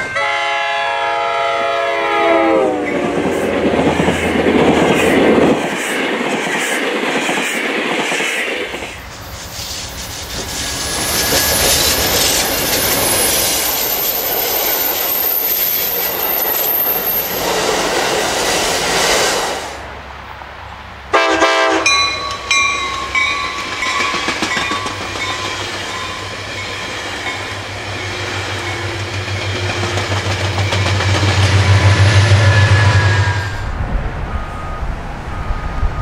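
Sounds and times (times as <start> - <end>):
train horn blowing: 0.0 - 3.2, 21.1 - 22.8, 31.4 - 33.8
train wheels on rails: 0.0 - 19.9, 21.1 - 36.0
diesel locomotive engine drone: 0.0 - 36.0.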